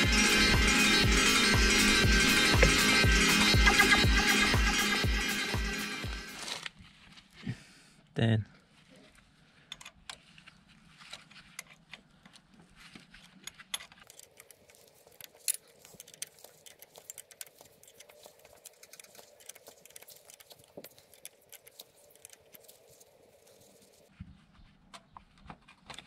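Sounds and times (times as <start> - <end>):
metal tool clicks and clinks: 13.4 - 22.6.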